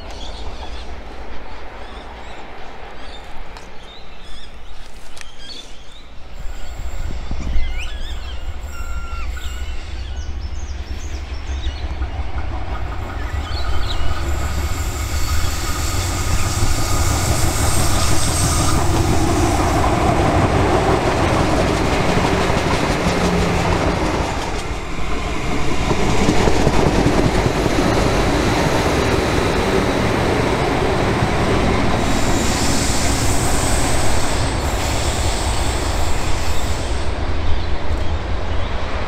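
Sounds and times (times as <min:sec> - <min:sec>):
diesel railcar rumbling past: 0:06.1 - 0:39.0
high wheel squeal: 0:06.3 - 0:10.2, 0:13.1 - 0:20.2.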